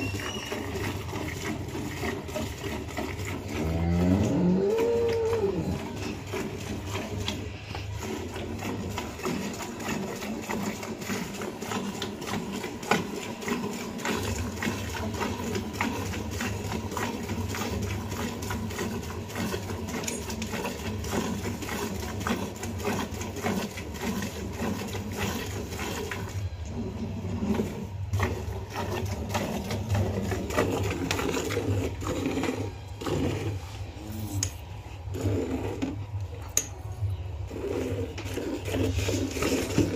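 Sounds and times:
milk squirting into a pail: 0.0s - 36.6s, 37.4s - 39.9s.

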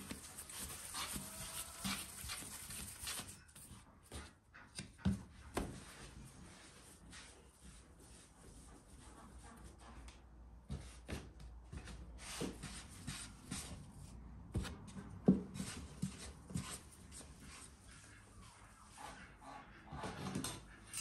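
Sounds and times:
hands rubbing dough: 0.0s - 3.6s.

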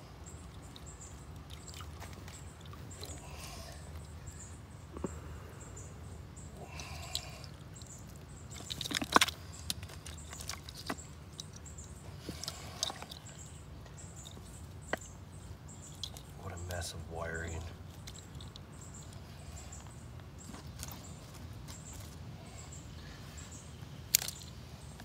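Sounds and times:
low background hum: 0.0s - 25.0s
small water splashes: 1.3s - 3.8s
clicks and rustles of plastic parts: 7.1s - 13.5s, 15.9s - 16.4s, 24.1s - 25.0s.

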